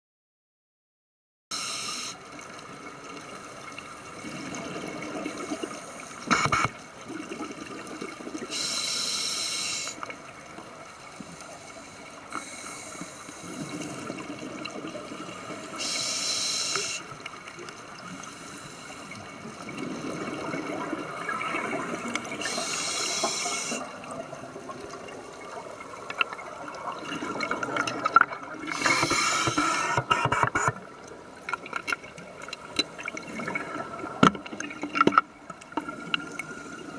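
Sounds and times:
regulator breathing hiss: 1.5s - 2.2s, 8.5s - 10.0s, 11.2s - 13.8s, 15.8s - 17.2s, 18.2s - 19.2s, 22.4s - 23.9s, 28.7s - 30.2s.

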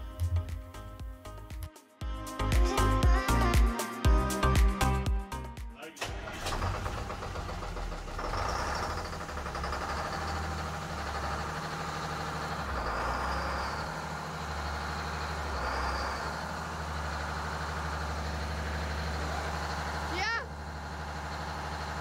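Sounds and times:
marine diesel engine idling: 6.0s - 22.0s.

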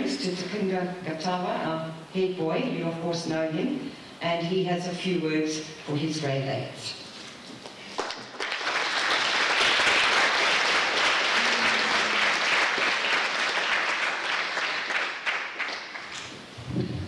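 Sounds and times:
audience applauding: 7.9s - 16.4s.

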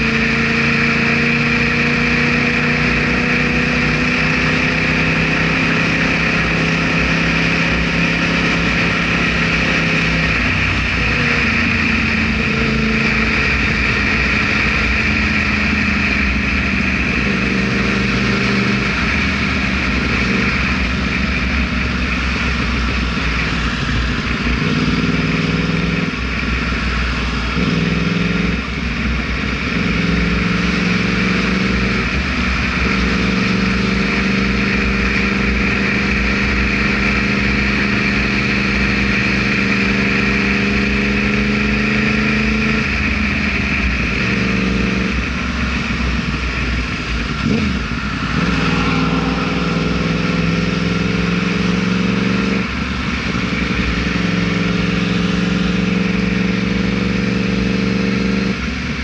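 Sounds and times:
motorcycle engine running: 0.0s - 59.0s
steady rushing noise: 45.1s - 54.1s.

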